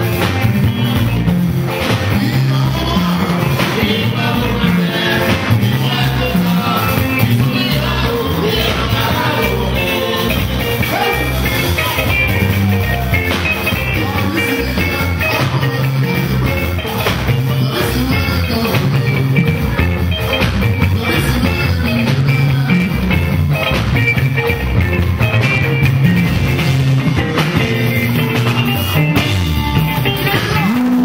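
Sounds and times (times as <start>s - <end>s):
lead vocal singing: 0.0s - 23.8s
live rock band playing: 0.0s - 31.0s.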